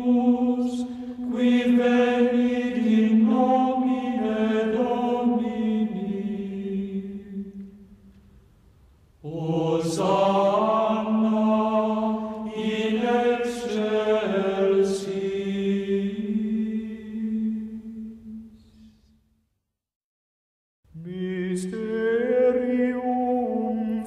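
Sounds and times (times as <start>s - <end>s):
slow chant-like singing: 0.0s - 8.0s, 9.2s - 19.1s, 20.9s - 24.0s.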